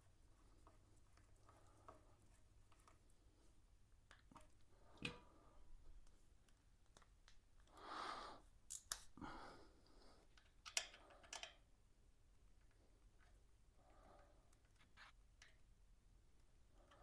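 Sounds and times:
soft rustle: 0:00.0 - 0:03.8.

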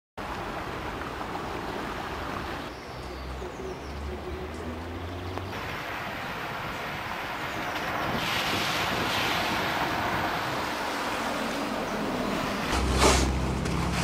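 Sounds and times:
floodwater rushing: 0:00.2 - 0:14.0
wind on microphone: 0:05.5 - 0:13.7.

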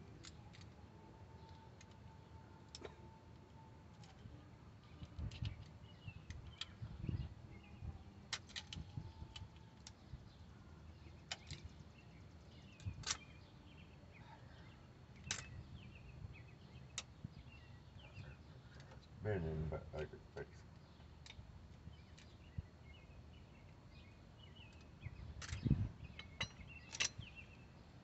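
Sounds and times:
clinks of hand tools and metal parts: 0:25.4 - 0:27.3.

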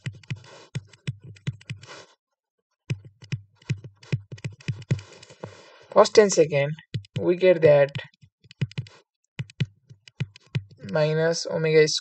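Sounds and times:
stylus tapping on screen: 0:00.0 - 0:01.9, 0:02.9 - 0:05.6, 0:06.8 - 0:11.1.

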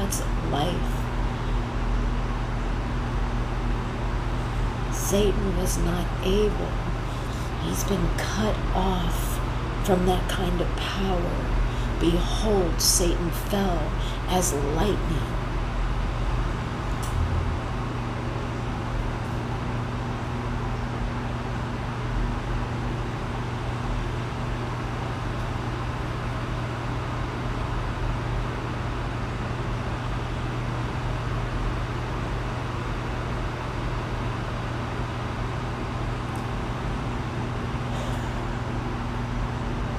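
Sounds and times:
low hum: 0:00.0 - 0:22.0
steady rushing noise: 0:17.0 - 0:18.1.

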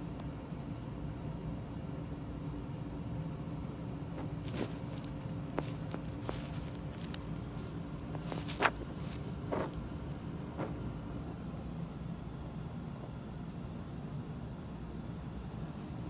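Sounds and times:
low room hum: 0:00.0 - 0:16.0
soft rustles and ticks: 0:04.2 - 0:10.9.

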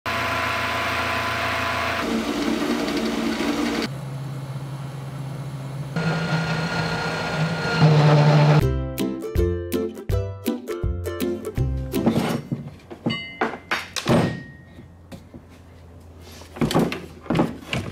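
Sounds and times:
metal lathe running: 0:00.1 - 0:03.9, 0:06.0 - 0:08.6
milling machine cutting steel: 0:00.1 - 0:03.9, 0:06.0 - 0:08.6
music: 0:08.0 - 0:12.4.

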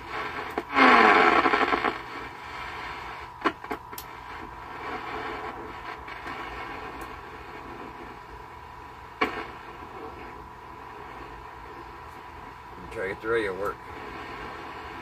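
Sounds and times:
radio static hiss: 0:00.0 - 0:15.0
sharp clicks: 0:03.4 - 0:04.1.

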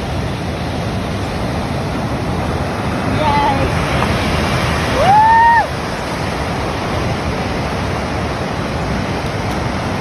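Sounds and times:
ocean surf breaking on beach: 0:00.0 - 0:10.0.

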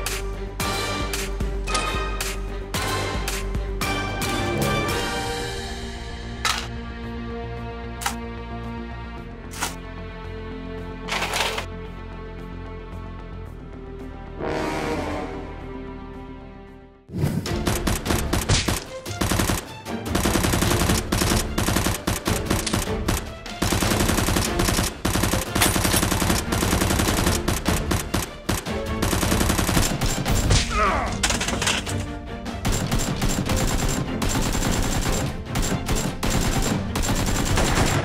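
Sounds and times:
rapid automatic gunfire: 0:17.6 - 0:30.5, 0:32.6 - 0:38.0.

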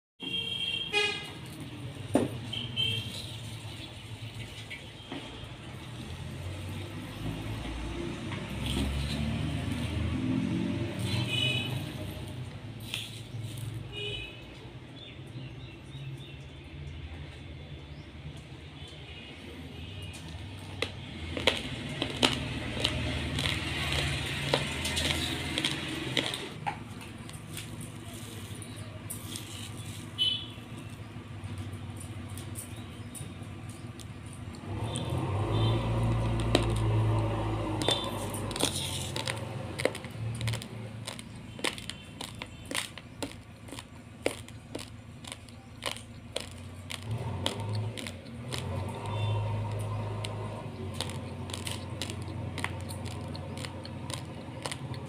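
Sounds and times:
rice grains rustling: 0:20.7 - 0:26.6, 0:36.2 - 0:54.9.

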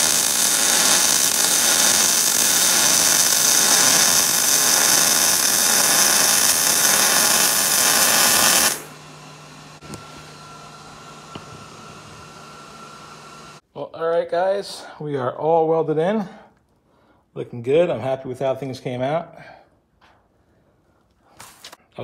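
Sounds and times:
welder crackling hiss: 0:00.0 - 0:09.0.

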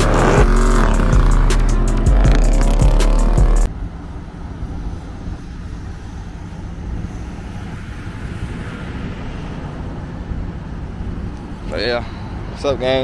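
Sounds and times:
loud music: 0:00.0 - 0:03.7
distant road traffic rumble: 0:00.0 - 0:13.0.

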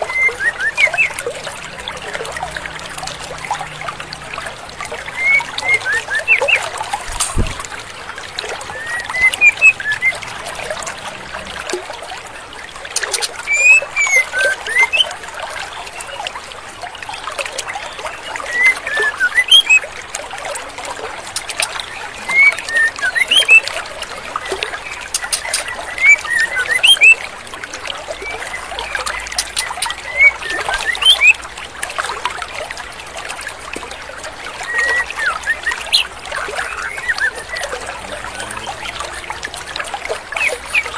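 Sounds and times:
bird whistled calls: 0:00.0 - 0:01.2, 0:05.2 - 0:06.7, 0:08.7 - 0:10.2, 0:13.4 - 0:15.1, 0:18.5 - 0:19.8, 0:22.2 - 0:23.6, 0:25.1 - 0:27.2, 0:28.2 - 0:31.4, 0:34.6 - 0:39.0
trickling stream water: 0:00.0 - 0:40.9.

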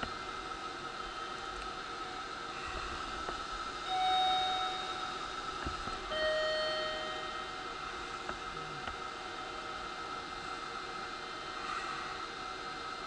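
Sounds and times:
steady hum: 0:00.0 - 0:13.0
two-note electronic chime: 0:03.9 - 0:05.3, 0:06.0 - 0:07.8.

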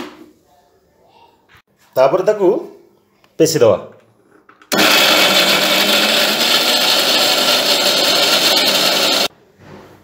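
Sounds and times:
mixer grinder running: 0:04.7 - 0:09.3.

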